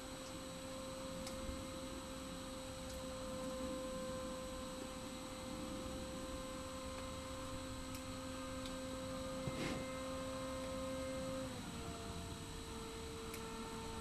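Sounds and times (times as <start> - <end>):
electric motor and propeller whine: 0.0 - 14.0
brief rustle: 9.4 - 9.9.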